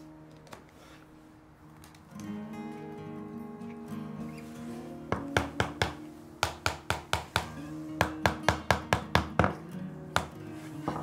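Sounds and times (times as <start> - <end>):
soft acoustic guitar music: 0.0 - 11.0
hammer tapping wood: 5.1 - 9.6, 10.2 - 11.0.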